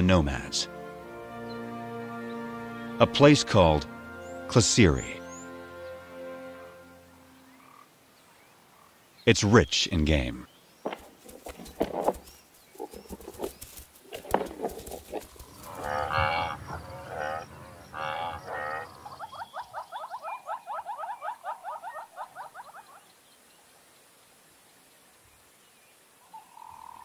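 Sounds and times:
buffalo lowing: 14.1 - 19.7.

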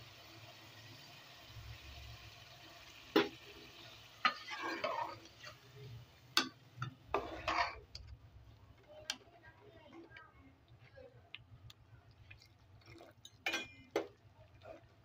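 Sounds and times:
ladle stirring liquid: 4.2 - 5.8, 6.4 - 8.1, 8.7 - 15.0.

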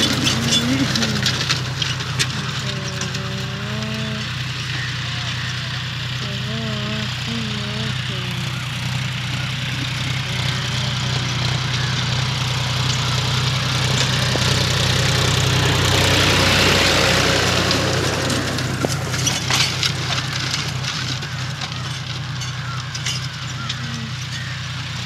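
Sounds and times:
harrow rattling and clanking: 0.0 - 25.0
tractor diesel engine running: 0.0 - 25.0.

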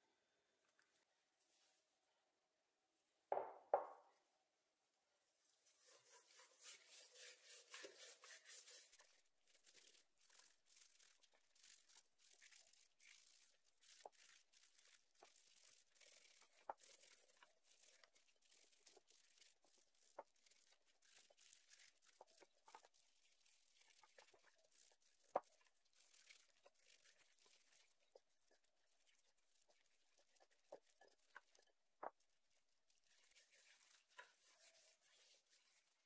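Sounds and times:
hands rubbing spice into chicken: 5.8 - 32.3.

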